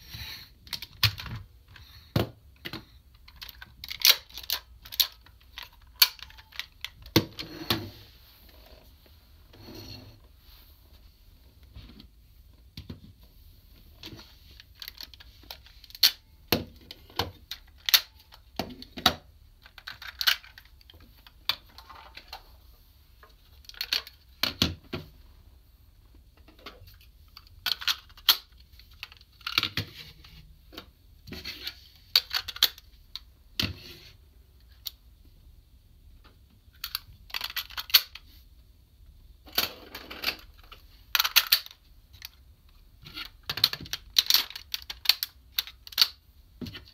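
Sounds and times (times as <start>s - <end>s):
plastic parts clicking and knocking: 0.6s - 7.8s, 14.0s - 22.5s, 23.2s - 25.2s, 26.4s - 30.0s, 30.7s - 33.8s, 36.2s - 38.2s, 39.4s - 46.9s.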